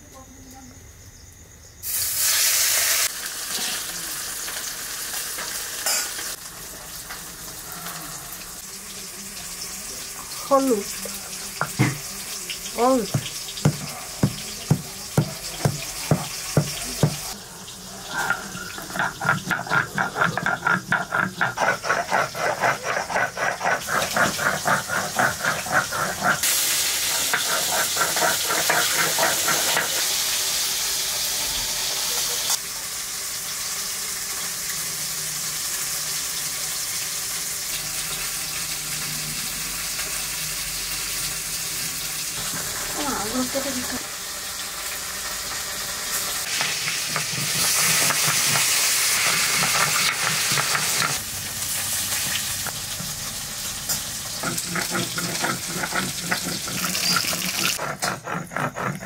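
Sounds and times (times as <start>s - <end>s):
food frying in oil: 1.8s - 59.0s
stone roller grinding paste: 12.8s - 17.4s, 18.1s - 30.3s, 46.5s - 51.2s, 54.4s - 59.0s.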